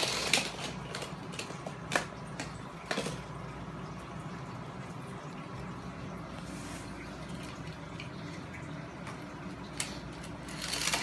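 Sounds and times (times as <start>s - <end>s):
toy cars clicking on plastic track: 0.0s - 2.1s, 10.4s - 11.0s
faint steady hum: 0.0s - 11.0s.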